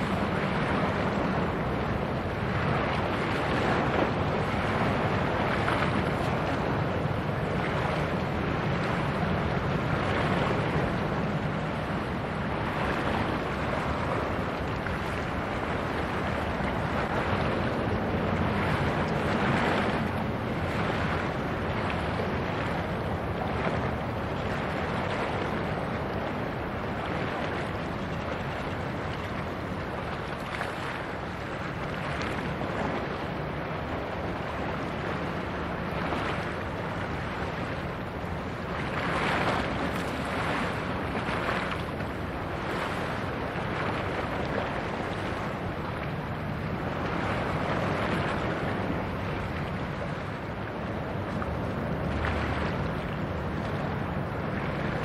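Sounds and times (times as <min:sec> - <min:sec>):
choppy sea water washing: 0:00.0 - 0:55.0
wind buffeting microphone: 0:00.0 - 0:55.0.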